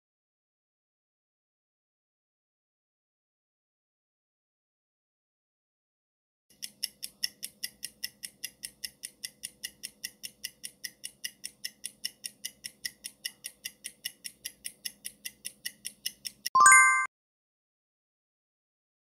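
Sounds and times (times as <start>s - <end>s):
high-pitched clock ticking: 6.5s - 17.1s.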